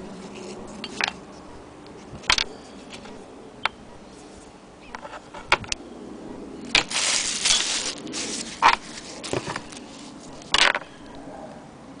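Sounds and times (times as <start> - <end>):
sharp knocks of metal parts: 2.2 - 3.8
plastic bag rustling: 6.6 - 10.6.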